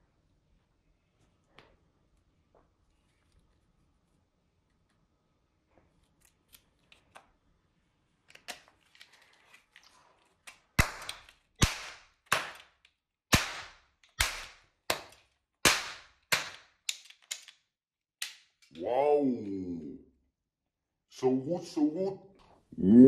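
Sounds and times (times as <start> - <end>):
toy pistol shots: 10.8 - 12.7, 13.3 - 14.6, 15.6 - 17.0.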